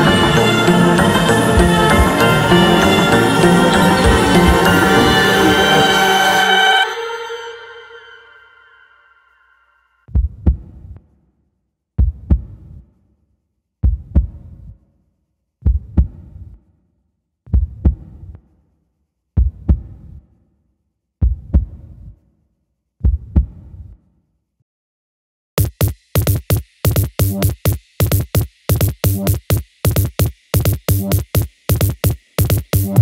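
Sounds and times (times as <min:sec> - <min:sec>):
heartbeat double thumps: 0:10.1 - 0:11.0, 0:12.0 - 0:12.8, 0:13.8 - 0:14.7, 0:15.6 - 0:16.5, 0:17.5 - 0:18.4, 0:19.4 - 0:20.0, 0:21.2 - 0:22.1, 0:23.0 - 0:23.8, 0:25.6 - 0:33.0.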